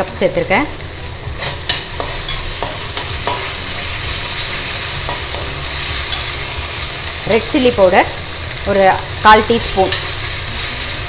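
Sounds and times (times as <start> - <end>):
onions sizzling in hot oil: 0.0 - 11.0
metal spoon scraping pan: 1.4 - 7.7.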